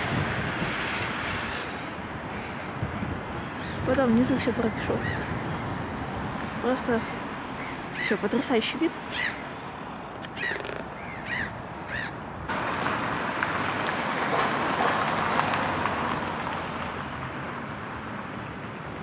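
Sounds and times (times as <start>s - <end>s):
steady rushing noise: 0.0s - 8.0s, 11.6s - 19.0s
crows cawing: 7.5s - 8.2s, 9.1s - 9.5s, 10.2s - 12.2s.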